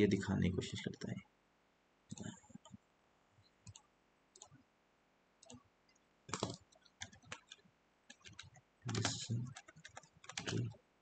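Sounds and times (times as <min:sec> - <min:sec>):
keyboard typing: 0:03.6 - 0:04.6, 0:05.4 - 0:05.6, 0:06.3 - 0:10.8
mouse clicks: 0:03.6 - 0:04.6.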